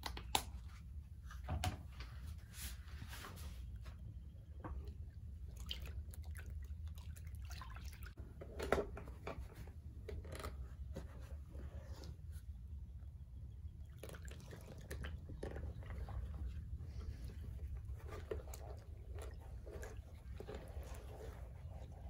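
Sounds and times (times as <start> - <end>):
water sloshing in plastic tub: 4.6 - 12.4, 13.6 - 22.0
water splashing: 5.4 - 8.2, 13.9 - 22.0.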